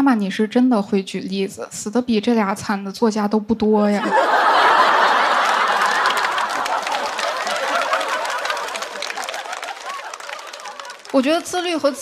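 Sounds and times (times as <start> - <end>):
audience laughing and clapping: 4.0 - 12.0.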